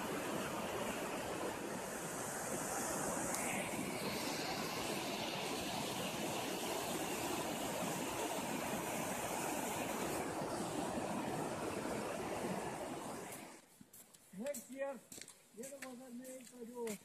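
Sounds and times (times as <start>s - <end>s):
river water rushing: 0.0s - 13.6s.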